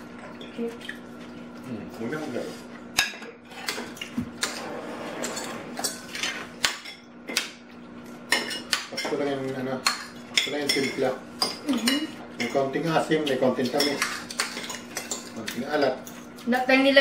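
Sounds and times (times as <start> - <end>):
cutlery clinking and scraping on plates: 3.0 - 7.5, 8.3 - 16.3.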